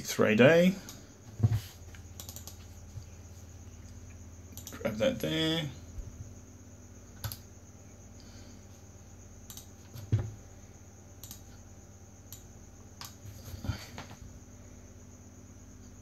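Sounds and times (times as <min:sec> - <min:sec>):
faint electrical hum: 0:00.0 - 0:16.0.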